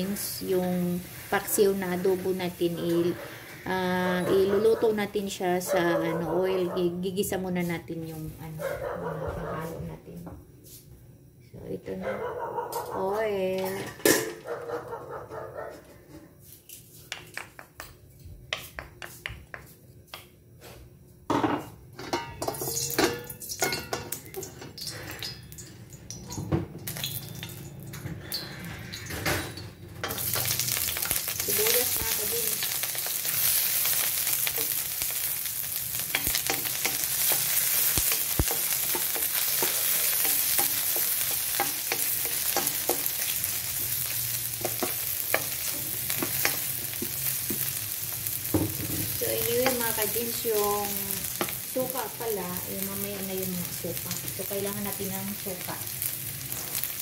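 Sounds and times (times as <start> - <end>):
spatula in a wok: 0.0 - 5.6, 21.7 - 57.0
onions sizzling in oil: 0.0 - 8.6, 21.4 - 57.0
hot oil clicks and crackles: 22.4 - 28.5, 30.0 - 57.0.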